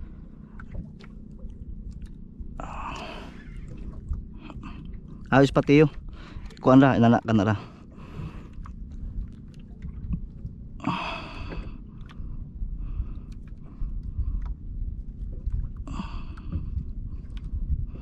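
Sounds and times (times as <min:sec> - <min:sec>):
steady low rumble: 0:00.0 - 0:18.0
person breathing out hard: 0:10.8 - 0:11.7.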